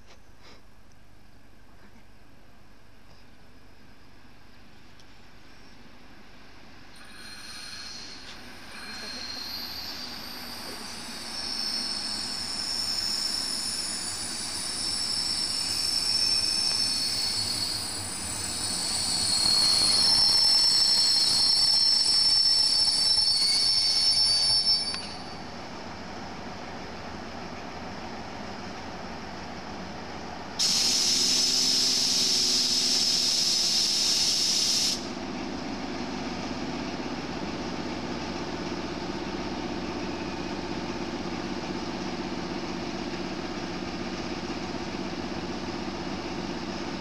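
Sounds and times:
train rumbling: 0:06.2 - 0:47.0
train wheels squealing: 0:07.0 - 0:25.6, 0:30.6 - 0:35.1.

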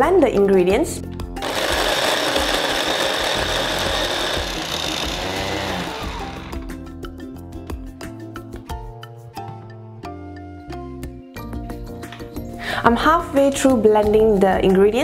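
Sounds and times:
background music: 0:00.0 - 0:15.0
electric food chopper running: 0:01.4 - 0:06.8.

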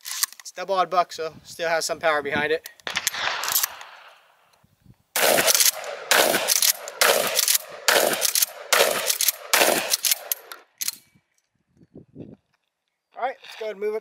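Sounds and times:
shotgun shots: 0:02.9 - 0:04.3, 0:05.2 - 0:10.6.

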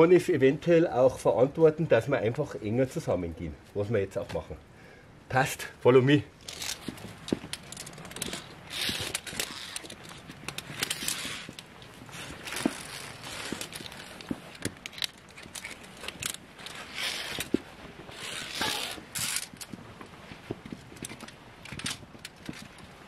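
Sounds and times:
climbing gear clattering: 0:06.4 - 0:19.8, 0:20.6 - 0:23.0
rustling: 0:06.4 - 0:23.0
footsteps: 0:06.5 - 0:21.2.

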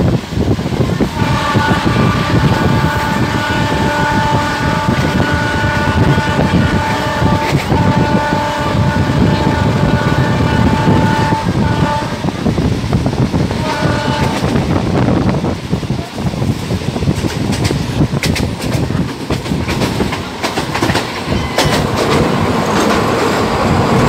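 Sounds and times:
train wheels rumbling on rails: 0:00.0 - 0:24.0
locomotive horn blast: 0:01.0 - 0:12.7, 0:13.4 - 0:14.9.

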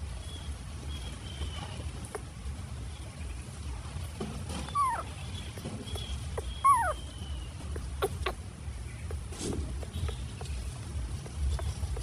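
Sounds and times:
baby monkey crying: 0:04.7 - 0:08.4.

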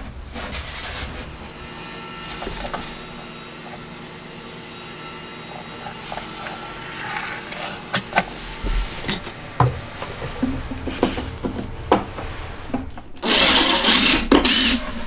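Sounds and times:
pencil scratching on plywood: 0:04.9 - 0:09.4
steel ruler handled: 0:05.5 - 0:09.4.

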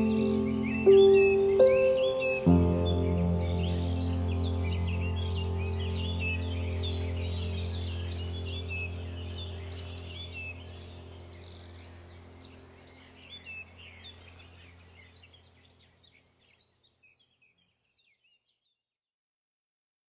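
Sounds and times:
steady low hum: 0:00.0 - 0:16.1
birds chirping: 0:00.0 - 0:18.6.

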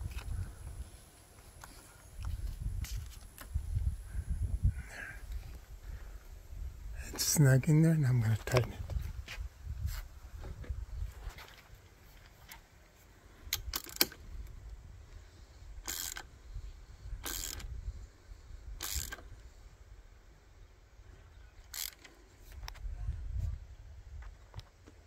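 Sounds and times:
ratchet wrench clicking: 0:13.5 - 0:14.2, 0:15.8 - 0:16.3, 0:17.2 - 0:17.7, 0:18.8 - 0:19.2, 0:21.7 - 0:22.1.

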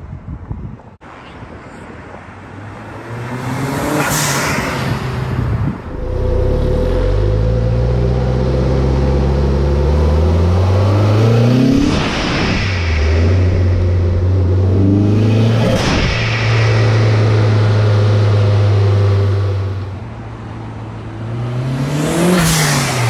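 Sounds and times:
car engine revving: 0:02.9 - 0:20.3, 0:21.1 - 0:23.0
blow-off valve whoosh: 0:05.8 - 0:09.1, 0:11.6 - 0:19.8.

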